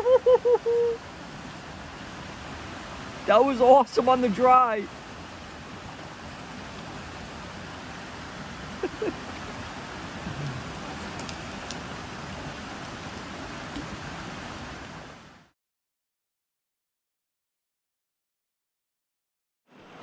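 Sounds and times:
brook rushing over rocks: 1.6s - 15.0s.

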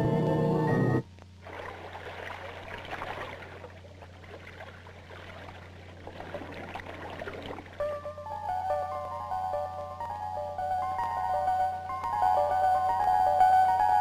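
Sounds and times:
film soundtrack music: 0.0s - 1.0s, 7.8s - 14.0s
steady low hum: 0.0s - 14.0s.

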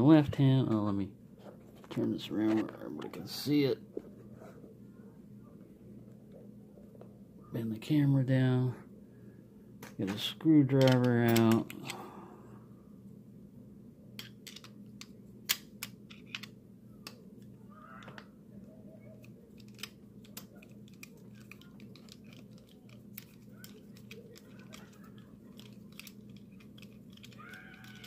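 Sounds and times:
steady low hum: 0.0s - 28.0s
screwdriver clicking on padlock: 10.8s - 11.7s, 14.2s - 17.2s, 19.2s - 28.0s.

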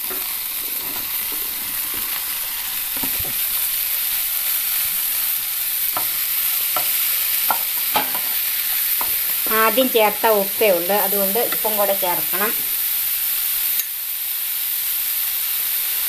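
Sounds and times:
spatula scraping a pan: 0.0s - 3.8s, 4.5s - 9.4s
mushrooms sizzling in a frying pan: 0.0s - 16.0s.

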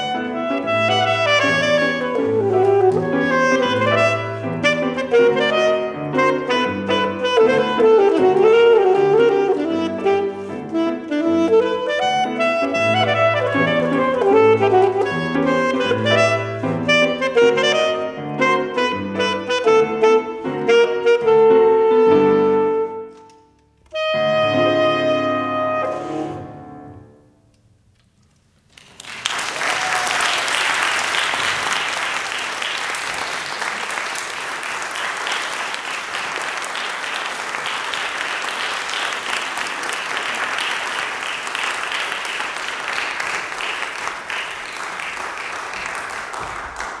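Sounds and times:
saxophone and piano playing: 0.0s - 27.5s
audience clapping: 28.6s - 47.0s.

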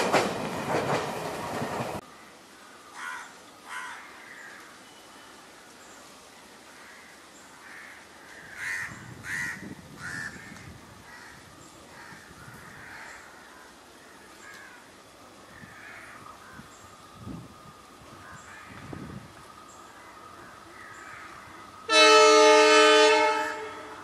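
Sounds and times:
crows cawing: 2.9s - 4.7s, 6.7s - 14.9s, 15.5s - 16.7s, 18.2s - 18.9s, 20.0s - 21.6s.

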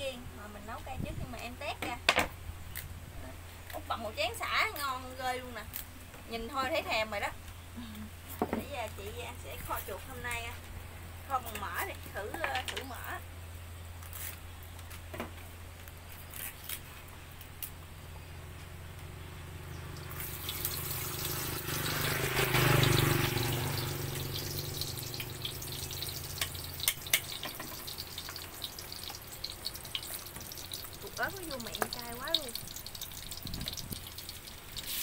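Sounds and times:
fat sizzling in a pan: 19.9s - 35.0s.

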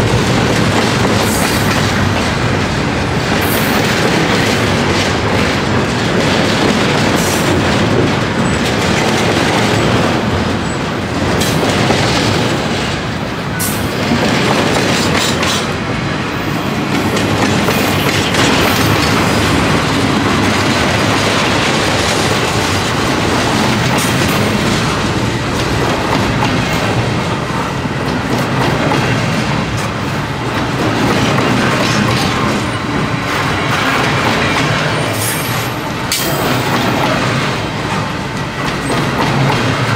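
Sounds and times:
wheels clicking over rail joints: 0.0s - 15.8s
freight train wheels rumbling: 0.0s - 39.9s.

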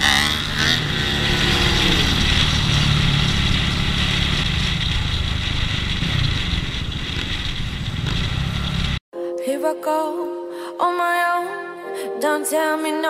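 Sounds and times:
motorcycle engine running: 0.0s - 9.0s.

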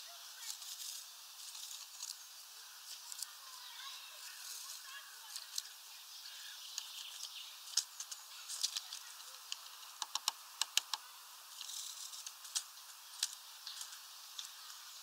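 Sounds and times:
faint birdsong: 0.0s - 15.0s
bird tapping at feeder: 9.9s - 11.1s.

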